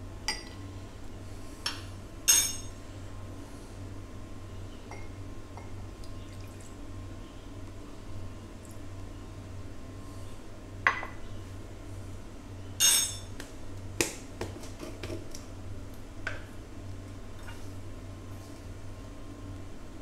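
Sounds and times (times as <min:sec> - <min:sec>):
ringing clink: 0:02.3 - 0:02.7, 0:12.8 - 0:13.3.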